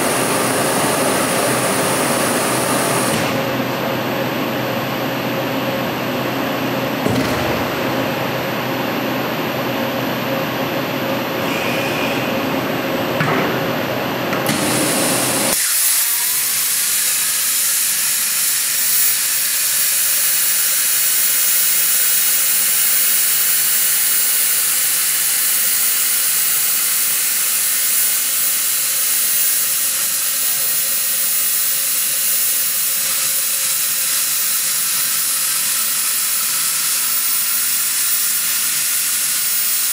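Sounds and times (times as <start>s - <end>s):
machine hum with steady tone: 0.0s - 16.5s
plasma arc cutting hiss: 15.5s - 39.9s.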